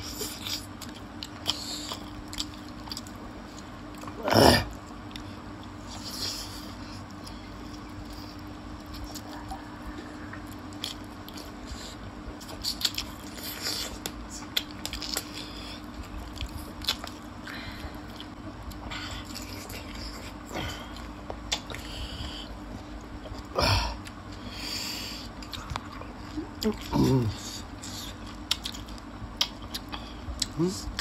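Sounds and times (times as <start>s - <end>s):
people chewing and biting: 0.0s - 31.0s
mouth smacks and clicks: 21.3s - 21.9s, 27.8s - 31.0s.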